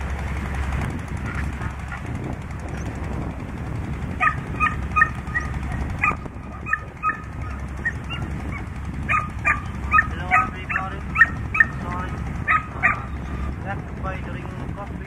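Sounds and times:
steady low rumble: 0:00.0 - 0:15.0
animal yelps: 0:04.2 - 0:11.8, 0:12.4 - 0:13.3.

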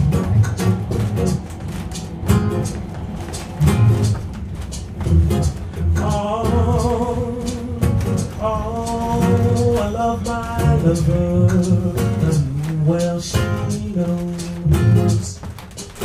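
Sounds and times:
acoustic guitar plucked and strummed: 0:00.0 - 0:16.0
man singing: 0:05.1 - 0:15.5.

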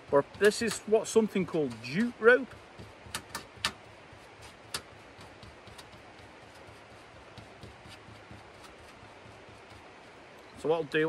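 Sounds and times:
low steady hiss: 0:00.0 - 0:11.0.

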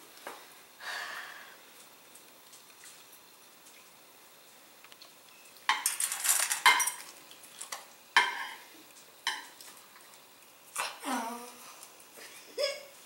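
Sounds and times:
metal bowl clattering: 0:05.7 - 0:08.6.

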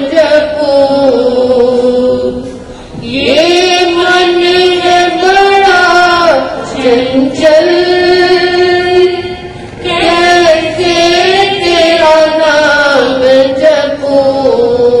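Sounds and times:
woman singing devotional song: 0:00.0 - 0:15.0.

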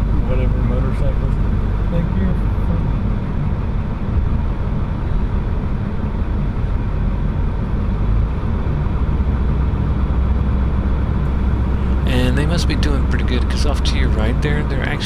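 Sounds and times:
car engine rumble: 0:00.0 - 0:15.0
road noise hiss: 0:11.2 - 0:15.0.

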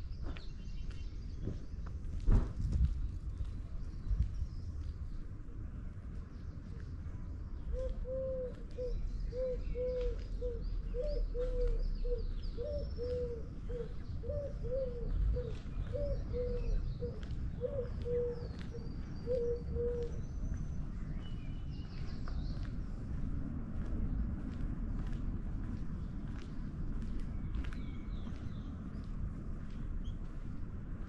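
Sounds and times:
dove cooing: 0:07.7 - 0:20.2.

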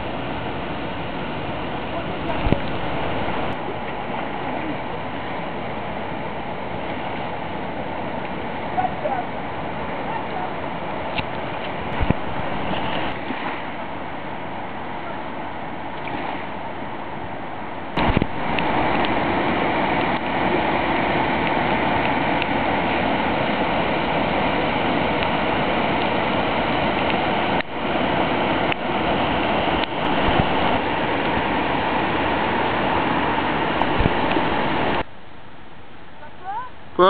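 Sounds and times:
fast water rushing: 0:00.0 - 0:37.0.

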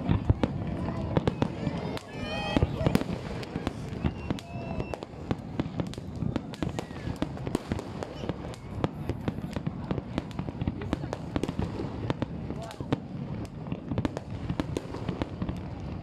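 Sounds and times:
fireworks banging: 0:00.0 - 0:16.0.

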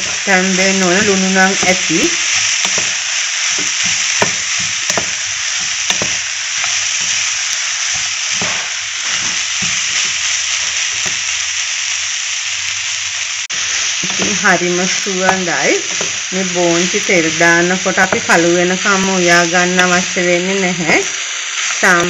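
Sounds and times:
spatula scraping and tapping pan: 0:00.0 - 0:10.1, 0:13.6 - 0:14.4
beans sizzling in oil: 0:00.0 - 0:22.0.

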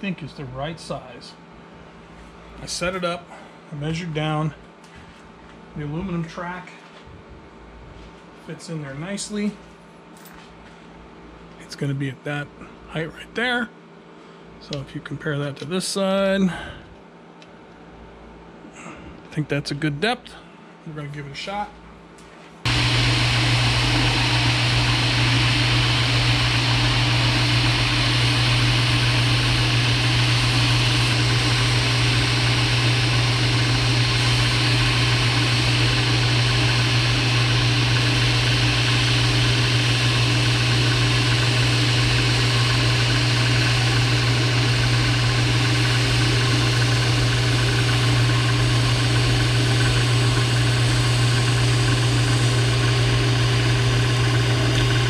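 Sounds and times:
end mill cutting wood: 0:22.7 - 0:55.0
milling machine motor hum: 0:22.7 - 0:55.0.

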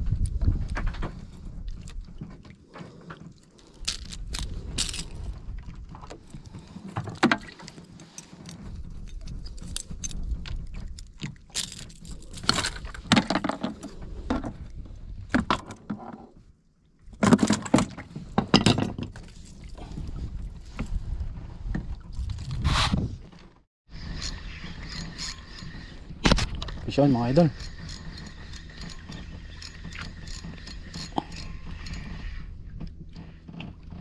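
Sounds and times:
wind rumble on microphone: 0:00.0 - 0:15.7, 0:18.0 - 0:34.0
fishing tackle clicking and clattering: 0:03.6 - 0:05.2, 0:06.6 - 0:14.0.

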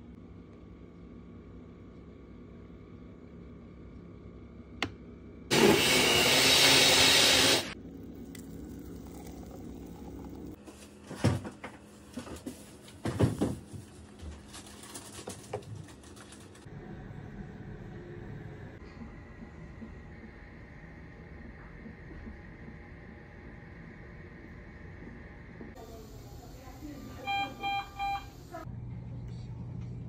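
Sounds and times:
blender running: 0:05.5 - 0:07.8.

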